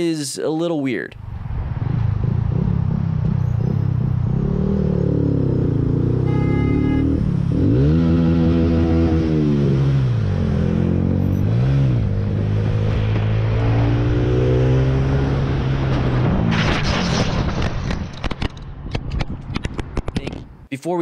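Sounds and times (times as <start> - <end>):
motorcycle engine revving: 1.4 - 16.6
motorcycle crash knocks and scrapes: 15.9 - 20.0.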